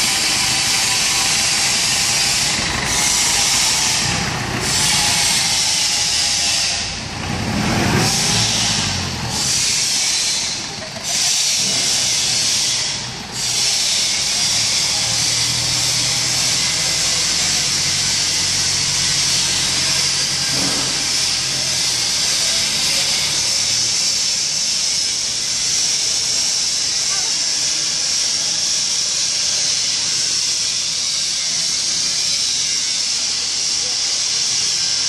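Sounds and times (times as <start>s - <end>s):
forklift engine running: 0.0s - 35.0s
loud steady hiss: 8.2s - 35.0s.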